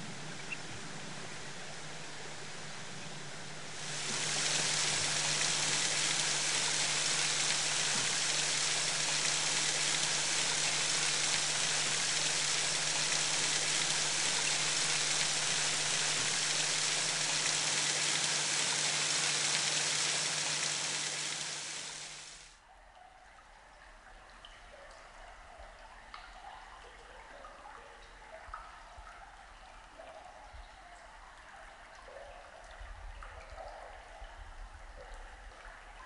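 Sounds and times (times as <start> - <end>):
low hum: 0.0 - 22.3
creek flowing over rocks: 3.4 - 22.4.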